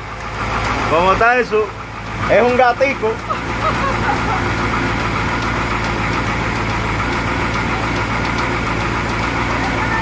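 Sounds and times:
boat engine idling: 0.0 - 10.0.

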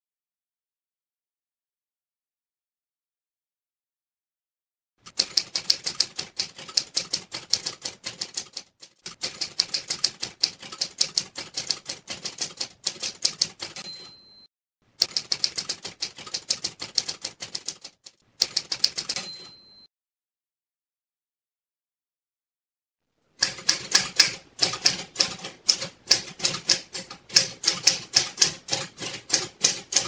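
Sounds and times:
typewriter bell ding: 13.7 - 14.5, 19.1 - 19.9.

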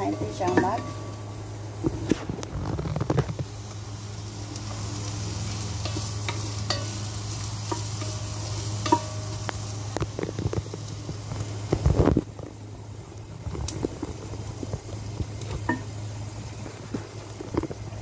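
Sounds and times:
spatula scraping and knocking pot: 0.0 - 1.1, 8.8 - 10.7
onions sizzling in oil: 0.0 - 18.0.

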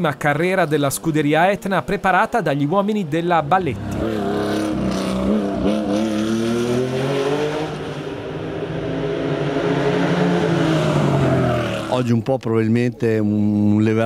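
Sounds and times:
racing car accelerating: 3.5 - 12.1.

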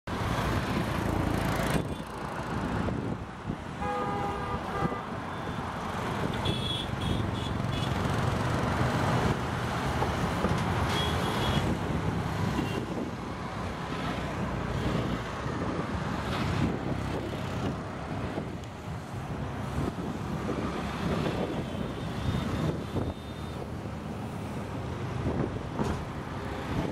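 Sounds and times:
road traffic noise: 0.1 - 26.9
vehicle horn toots: 3.8 - 5.1.

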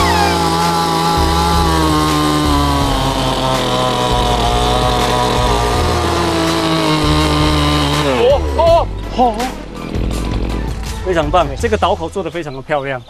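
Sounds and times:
chainsaw cutting wood: 0.0 - 11.0.

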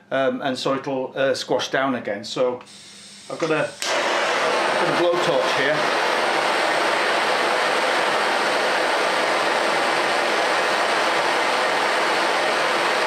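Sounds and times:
blowtorch hissing: 2.7 - 13.0.

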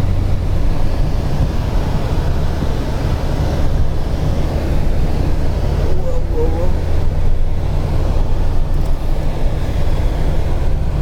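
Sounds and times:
car engine and tyre rumble: 0.0 - 11.0.

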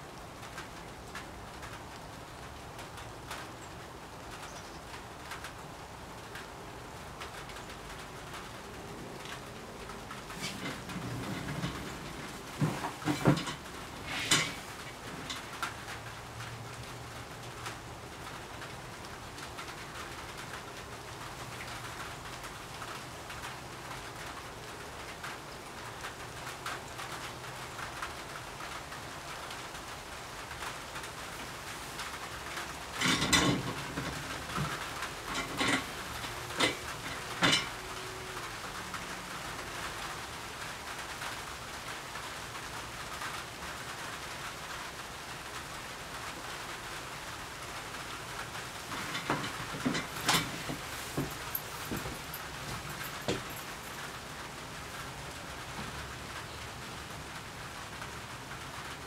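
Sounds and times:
rain-like hiss: 0.0 - 59.0
sharp knocks and clatters: 10.3 - 15.7, 32.6 - 37.9, 48.8 - 54.0.

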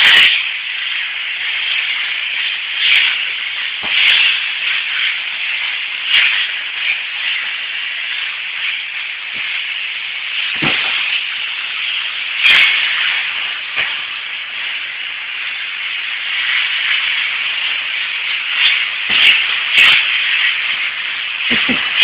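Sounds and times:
vacuum cleaner running: 20.7 - 22.0.

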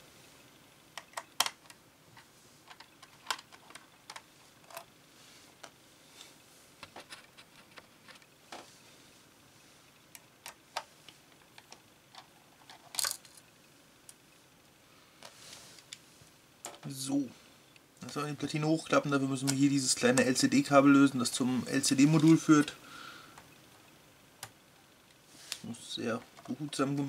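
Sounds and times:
light ticks of handled parts: 1.0 - 4.9
clatter of parts: 11.6 - 13.4.

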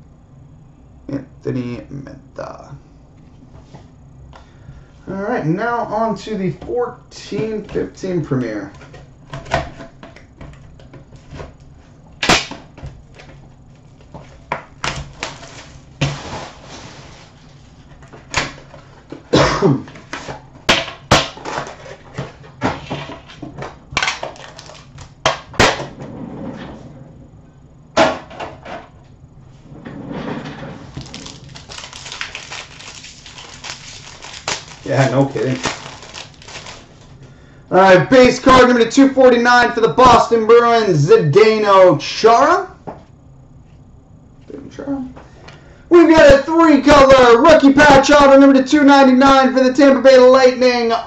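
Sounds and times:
packaging rustling: 13.2 - 17.9, 24.0 - 25.1, 30.9 - 37.1
knife slitting shrink-wrap: 31.0 - 36.8.

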